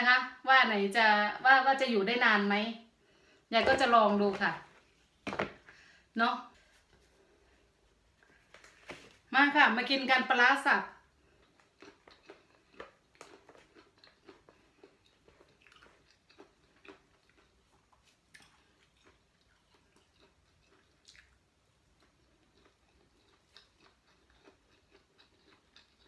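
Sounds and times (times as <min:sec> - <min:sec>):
faint chewing: 0:11.0 - 0:26.0.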